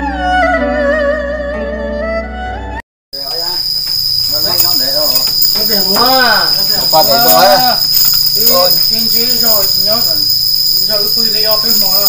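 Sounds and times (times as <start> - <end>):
crickets droning: 3.2 - 12.0
people talking: 3.2 - 12.0.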